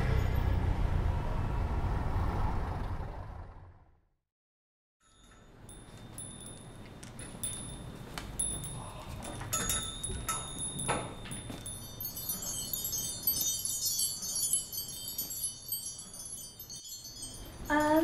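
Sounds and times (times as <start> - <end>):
high tinkling chimes: 5.0 - 18.0.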